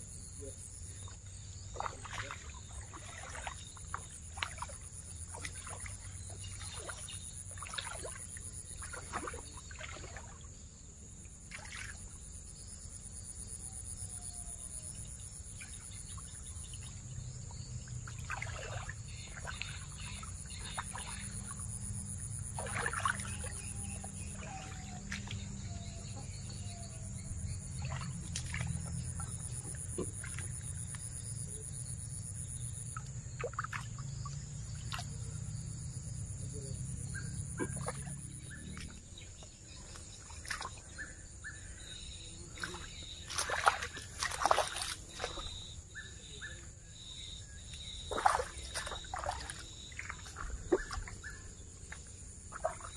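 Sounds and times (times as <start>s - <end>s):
insects droning: 0.0s - 52.9s
boots splashing through water: 1.6s - 10.4s, 18.0s - 26.4s, 27.7s - 31.1s, 33.2s - 35.2s, 37.6s - 41.1s, 42.5s - 45.8s, 47.7s - 52.9s.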